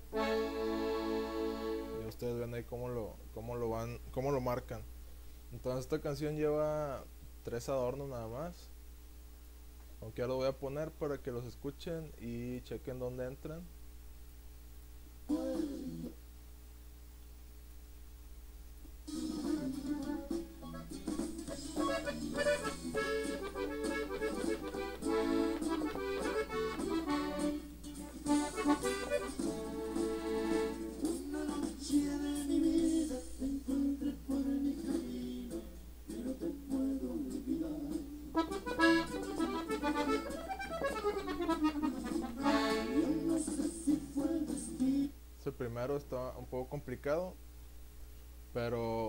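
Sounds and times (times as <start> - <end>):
button accordion melody run: 0.1 - 2.1, 21.5 - 31.0, 38.4 - 43.4.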